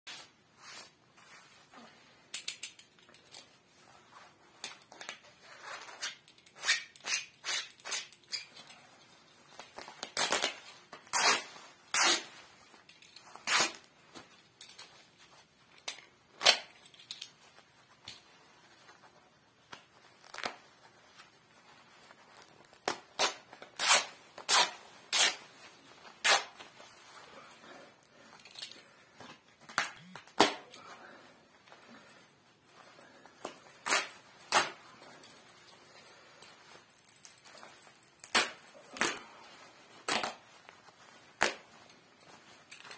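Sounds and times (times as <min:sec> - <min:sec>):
jacket rustling: 0:00.1 - 0:42.9
fabric tearing: 0:10.0 - 0:12.3, 0:13.4 - 0:13.9, 0:22.7 - 0:25.4, 0:26.2 - 0:26.6, 0:33.8 - 0:34.8
knife slitting fabric: 0:22.4 - 0:25.4, 0:26.2 - 0:26.7.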